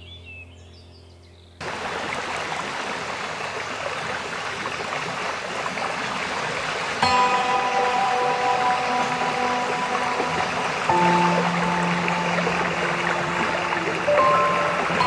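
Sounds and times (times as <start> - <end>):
faint birdsong chirps: 0.0 - 1.6
waterfall roaring: 1.6 - 15.0.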